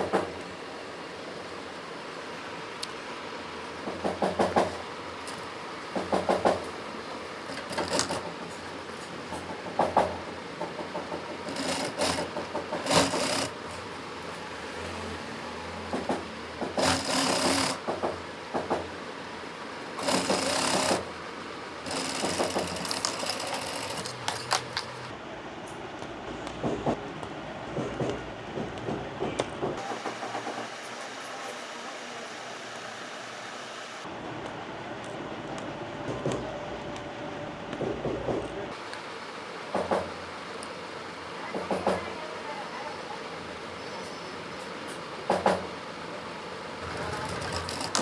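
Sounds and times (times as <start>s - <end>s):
industrial sewing machine stitching: 7.5s - 8.5s, 10.7s - 13.6s, 15.9s - 18.8s, 20.0s - 21.1s, 21.8s - 25.1s, 46.8s - 48.0s.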